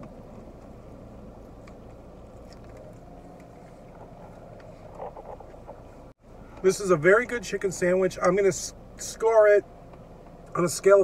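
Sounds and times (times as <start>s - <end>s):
car idling hum: 0.0s - 11.0s
faint chewing: 0.3s - 5.9s.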